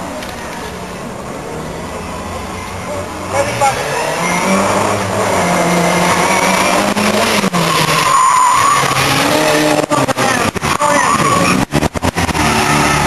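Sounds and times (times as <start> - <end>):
car engine revving: 1.3 - 13.0
tyres squealing: 2.0 - 11.8.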